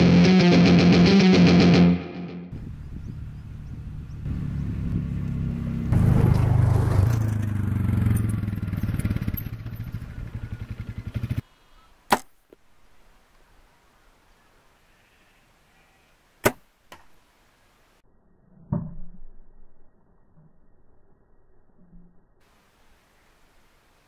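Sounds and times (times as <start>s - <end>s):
sharp crack of bow shot: 12.1s - 12.4s, 16.4s - 17.2s.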